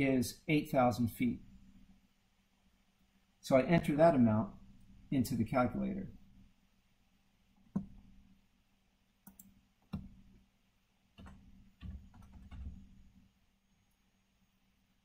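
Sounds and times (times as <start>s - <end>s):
computer mouse clicks: 7.6s - 8.1s, 9.2s - 10.2s
keyboard keystrokes: 11.2s - 12.9s.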